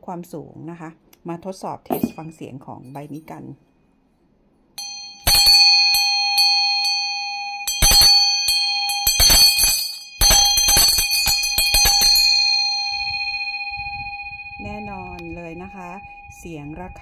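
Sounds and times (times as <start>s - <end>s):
hand bell ringing: 4.8s - 17.0s.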